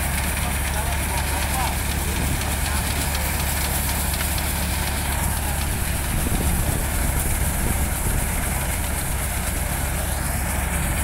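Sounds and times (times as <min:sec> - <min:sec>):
thresher running: 0:00.0 - 0:11.0
rushing rattling noise: 0:01.7 - 0:10.0.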